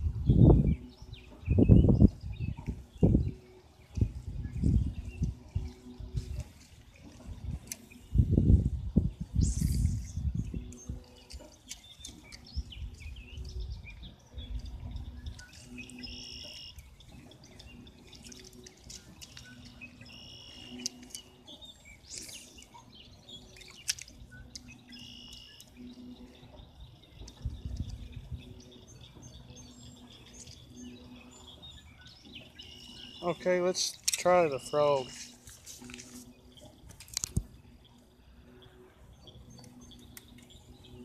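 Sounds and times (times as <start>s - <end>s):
songbirds singing: 0.0s - 41.0s.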